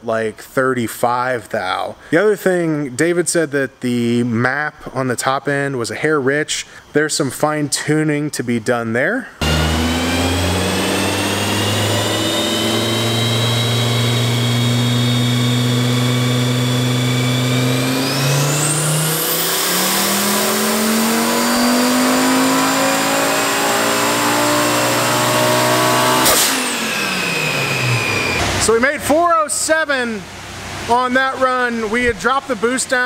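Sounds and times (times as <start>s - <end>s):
engine revving under load: 9.4s - 28.8s
high turbo whistle: 9.4s - 28.8s.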